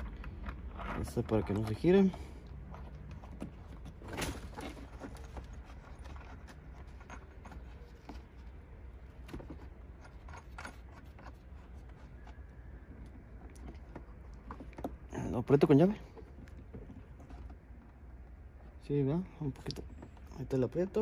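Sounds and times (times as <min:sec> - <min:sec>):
low steady hum: 0:00.0 - 0:21.0
small metal clicks and rubbing: 0:09.5 - 0:12.4.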